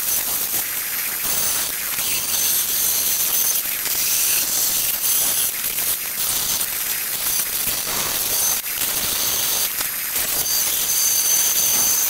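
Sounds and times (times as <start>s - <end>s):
bandsaw cutting steel: 6.2s - 12.0s.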